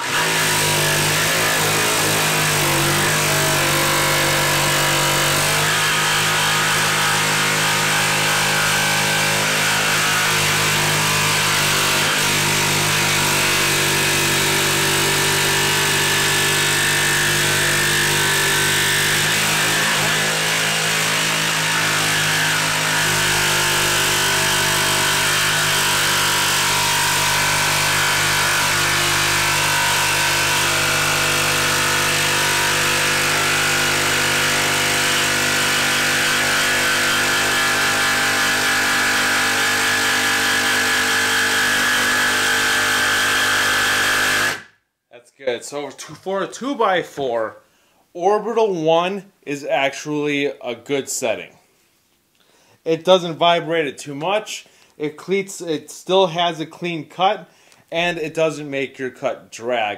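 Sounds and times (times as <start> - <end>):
jigsaw cutting wood: 0.0 - 44.7.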